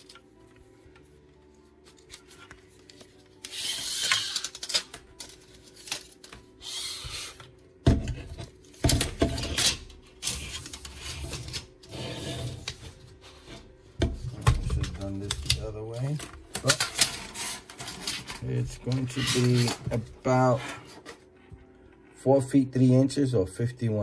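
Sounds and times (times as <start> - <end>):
hands rustling plastic and cable: 0.0 - 6.5.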